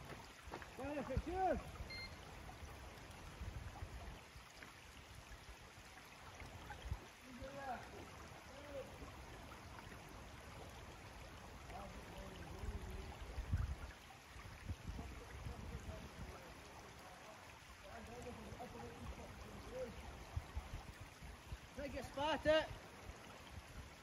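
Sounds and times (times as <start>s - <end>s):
wind rumbling on microphone: 1.0s - 4.3s, 12.4s - 16.6s, 20.0s - 21.8s.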